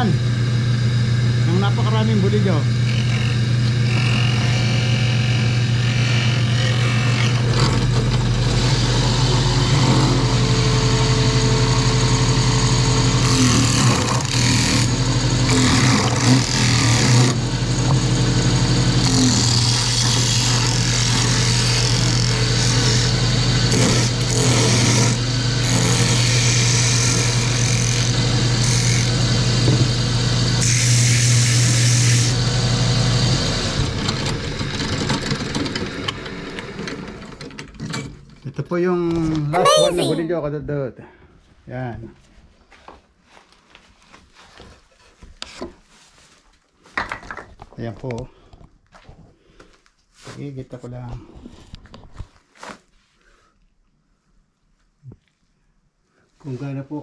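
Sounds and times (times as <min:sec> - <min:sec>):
lathe motor humming: 0:00.0 - 0:35.4.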